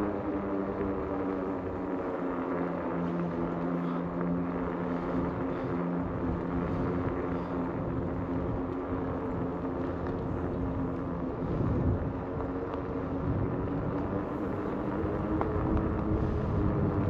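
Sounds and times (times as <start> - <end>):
electric bike motor hum: 0.0 - 17.0
tires rushing on pavement: 7.8 - 17.0.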